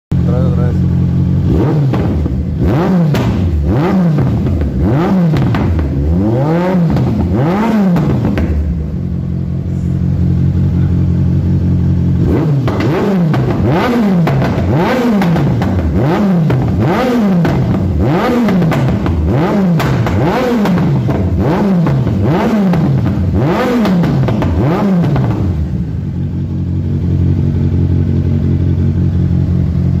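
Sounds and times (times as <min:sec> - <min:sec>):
motorcycle engine revving: 0:00.1 - 0:30.0
exhaust pops and crackles: 0:03.1 - 0:03.6, 0:04.2 - 0:06.0, 0:06.8 - 0:08.8, 0:12.6 - 0:25.6.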